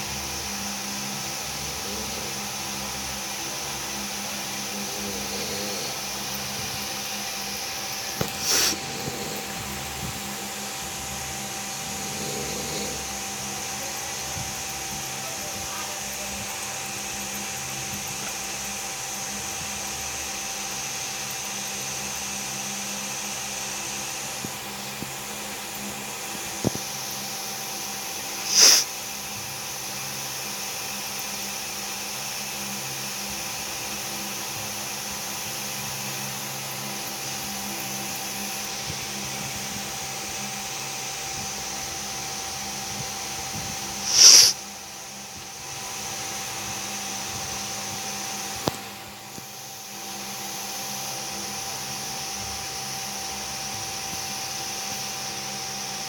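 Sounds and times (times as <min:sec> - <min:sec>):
small motor whirring: 0:00.0 - 0:56.0
brief loud hiss: 0:28.5 - 0:28.8, 0:44.0 - 0:44.6.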